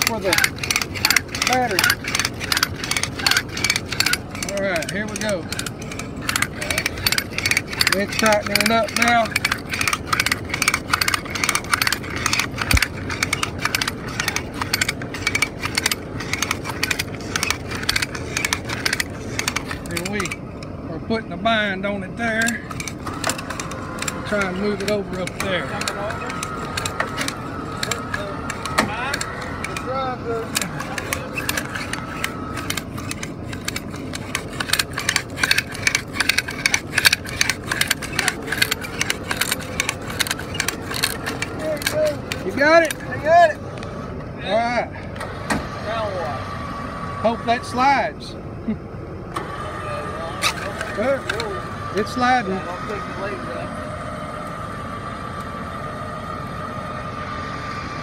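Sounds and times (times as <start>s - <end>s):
hand winch ratchet clicking: 0.0s - 20.7s, 22.2s - 43.6s, 50.4s - 52.5s
faint steady hum: 0.0s - 58.0s.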